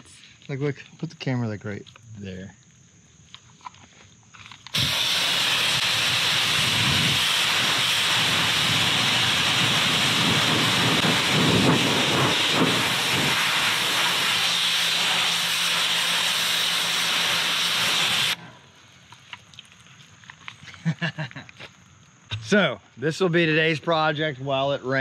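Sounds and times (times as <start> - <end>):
pressure washer spraying water: 4.7 - 18.4.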